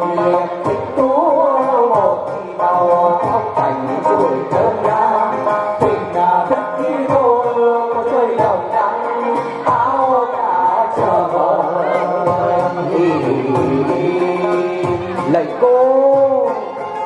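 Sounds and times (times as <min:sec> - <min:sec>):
percussion strikes: 0:00.0 - 0:17.0
plucked lute: 0:00.0 - 0:17.0.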